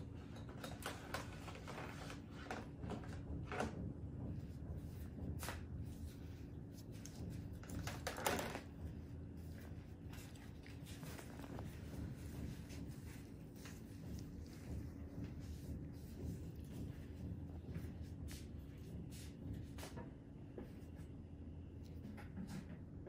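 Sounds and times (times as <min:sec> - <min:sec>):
low room hum: 0:00.0 - 0:23.0
gloved fingers rustling: 0:08.6 - 0:19.3.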